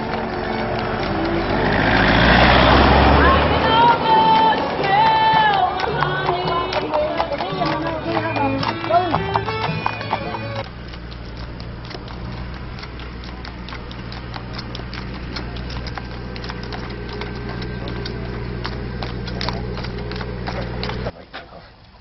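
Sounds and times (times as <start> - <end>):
hooves clip-clopping on tarmac: 0.0 - 21.2
steady low hum: 10.6 - 21.1.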